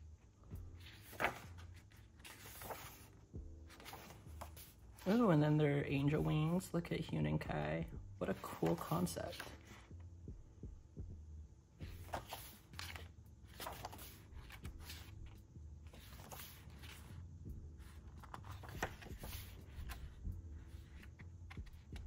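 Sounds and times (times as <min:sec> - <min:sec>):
book pages turning: 0:00.8 - 0:06.6, 0:08.2 - 0:09.9, 0:11.8 - 0:17.2, 0:17.8 - 0:22.0.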